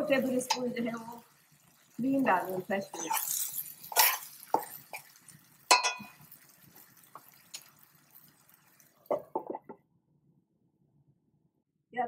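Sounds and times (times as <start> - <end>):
curry bubbling with pops: 0.0 - 9.8
metal spoon clinking on pan: 2.8 - 5.1, 5.7 - 6.2.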